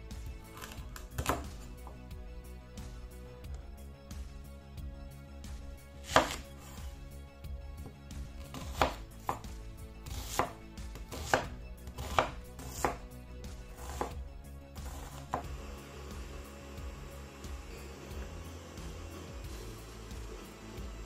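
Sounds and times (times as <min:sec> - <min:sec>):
knife striking cutting board: 0:06.0 - 0:06.4, 0:08.5 - 0:09.5, 0:10.1 - 0:13.0, 0:13.8 - 0:14.2, 0:14.8 - 0:15.5.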